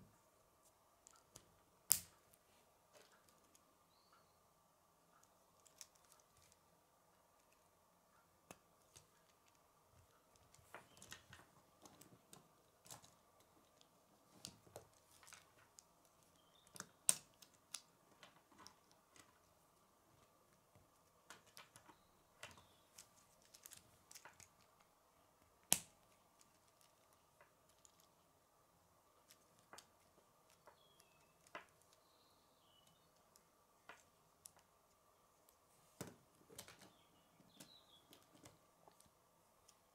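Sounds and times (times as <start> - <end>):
faint steady hum: 0.0 - 39.9
sharp plastic snaps: 1.1 - 2.3, 25.6 - 26.9.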